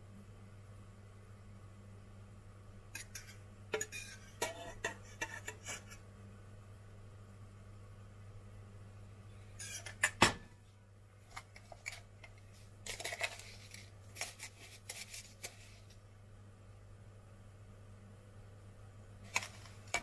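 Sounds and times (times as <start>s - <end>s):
low steady hum: 0.0s - 20.0s
metal spoon clicking and scraping: 3.0s - 5.6s.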